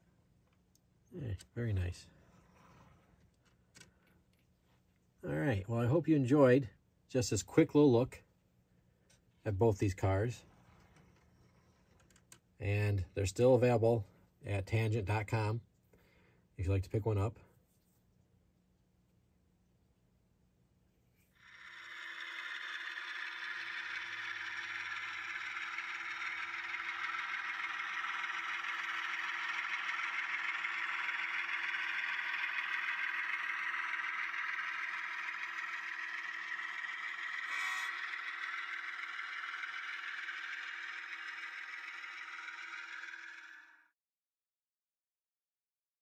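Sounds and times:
model train wheels rattling on rails: 21.4s - 43.9s.

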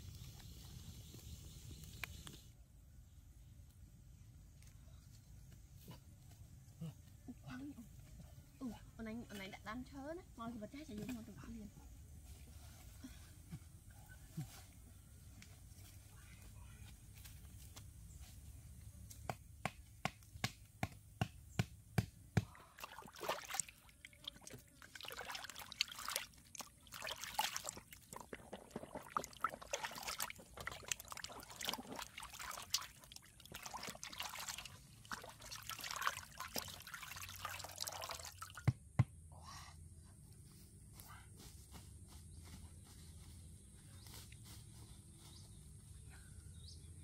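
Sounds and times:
water sloshing and splashing: 22.6s - 38.6s.

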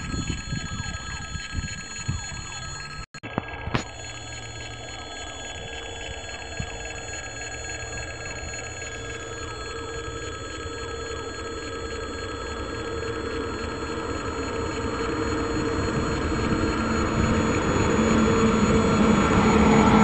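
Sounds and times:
freight train approaching: 4.0s - 20.0s
level-crossing warning bell ringing: 4.0s - 20.0s.

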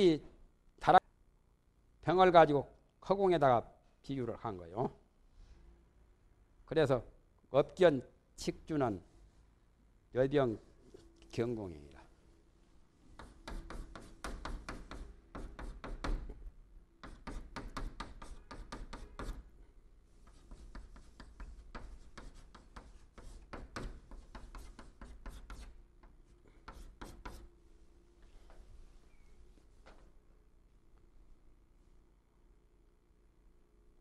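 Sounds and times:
chalk writing on chalkboard: 13.2s - 16.4s, 17.0s - 19.5s, 20.2s - 25.8s, 26.6s - 27.5s.

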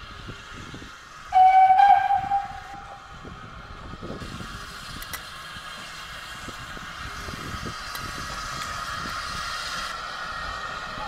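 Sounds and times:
steam locomotive whistle: 1.3s - 3.2s.

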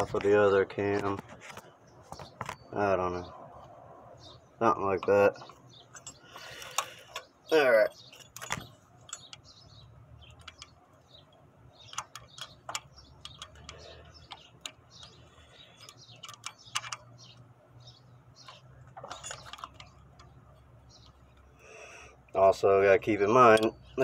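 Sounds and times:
metal clicks and taps: 8.1s - 9.5s, 10.3s - 17.2s, 18.4s - 20.4s, 23.4s - 23.8s.

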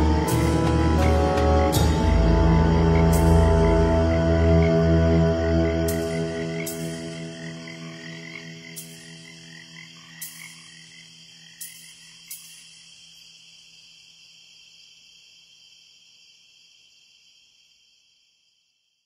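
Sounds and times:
low synth drone: 0.0s - 9.3s
frogs croaking: 0.0s - 19.0s
insects chirring: 0.0s - 19.0s.

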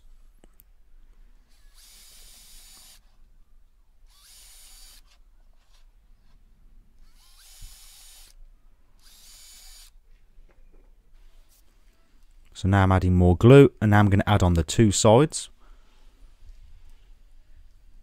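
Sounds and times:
cordless drill boring into wood: 1.5s - 3.1s, 4.1s - 5.8s, 7.0s - 8.4s, 9.0s - 10.0s.

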